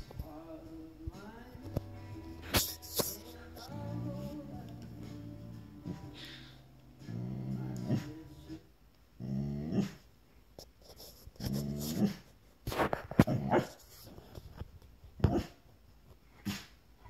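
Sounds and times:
dog grumbling: 7.0s - 8.2s, 9.2s - 10.0s, 11.4s - 12.3s.

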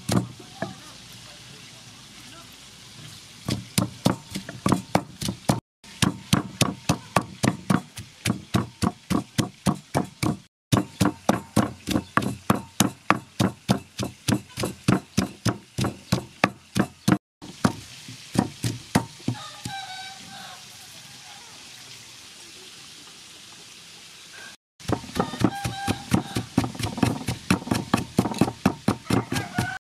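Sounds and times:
pestle pounding in wooden mortar: 0.0s - 0.8s, 3.4s - 19.8s, 24.8s - 29.8s.

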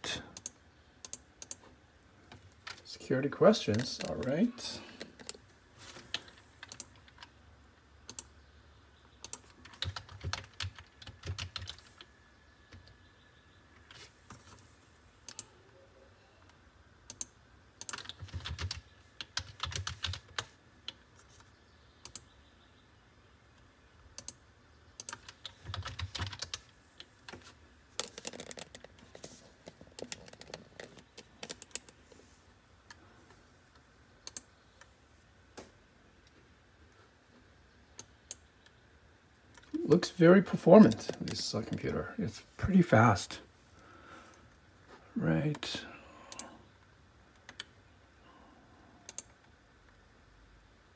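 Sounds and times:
typing on computer keyboard: 6.1s - 7.3s, 9.2s - 12.1s, 17.1s - 21.5s, 25.0s - 27.4s, 29.9s - 32.0s, 49.1s - 49.4s.

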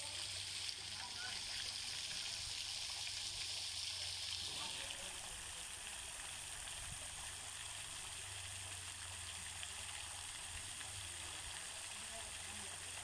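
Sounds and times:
fountain spray hissing on pool: 0.0s - 13.0s.

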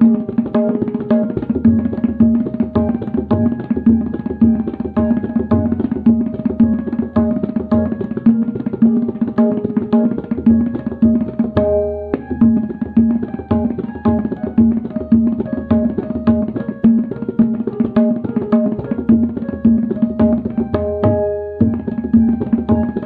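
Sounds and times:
pitched drum rhythm: 0.0s - 23.0s.

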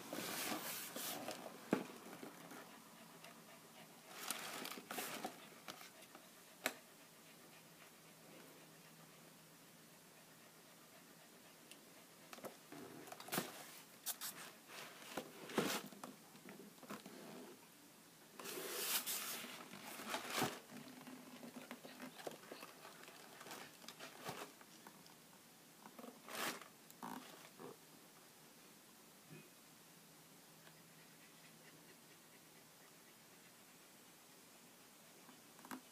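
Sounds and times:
cardboard scraping and rubbing: 0.1s - 1.8s.

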